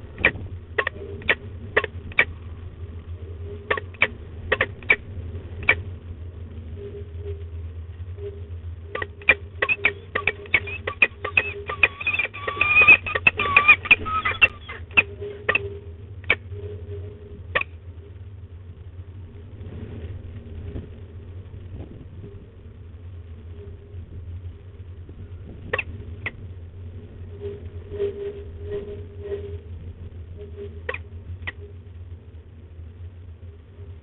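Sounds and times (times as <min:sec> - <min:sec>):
steady low hum: 0:00.0 - 0:34.0
falcon wavering call: 0:08.2 - 0:17.8.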